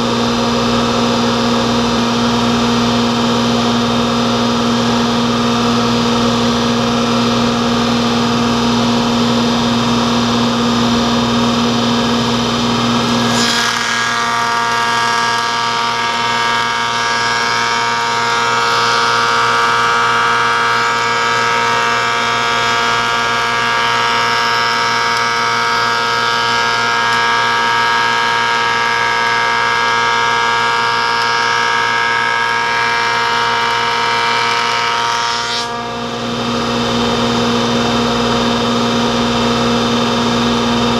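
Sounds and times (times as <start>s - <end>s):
planer-moulder whining: 1.6s - 28.6s.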